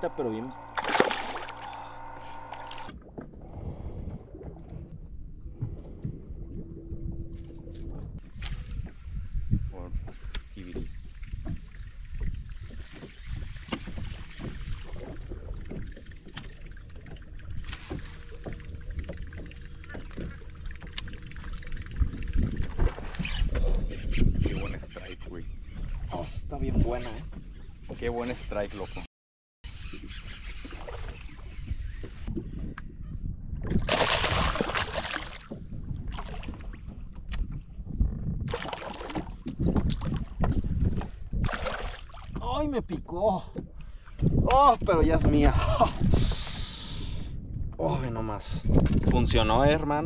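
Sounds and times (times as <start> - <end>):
water splashing: 0.0 - 3.0, 33.8 - 36.8, 38.5 - 40.4, 41.4 - 42.5
moving water rumble: 0.0 - 26.7, 33.7 - 45.9
wind: 0.0 - 50.0.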